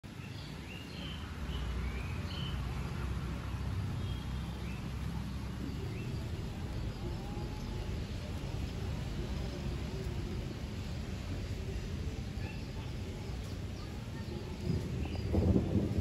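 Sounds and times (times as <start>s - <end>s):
birds chirping: 0.0s - 16.0s
low rumble: 14.4s - 16.0s.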